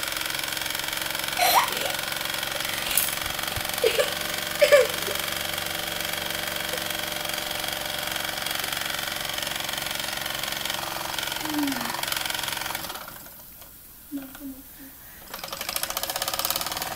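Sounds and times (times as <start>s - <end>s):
toy steam engine chuffing: 0.0s - 13.4s, 15.2s - 16.9s.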